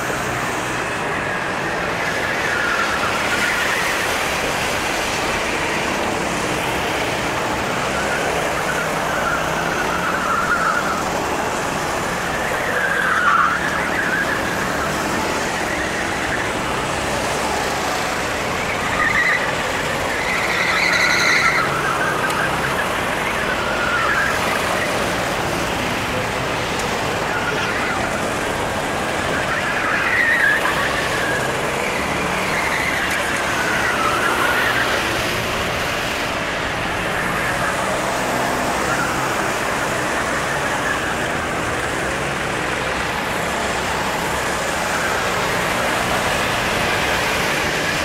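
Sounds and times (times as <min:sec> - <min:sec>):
karts passing: 0:00.0 - 0:48.0.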